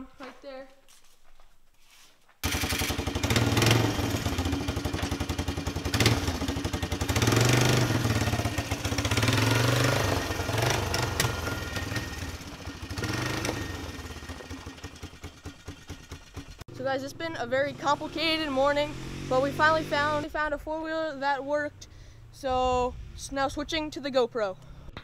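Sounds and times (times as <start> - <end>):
atv engine revving: 2.4 - 21.6.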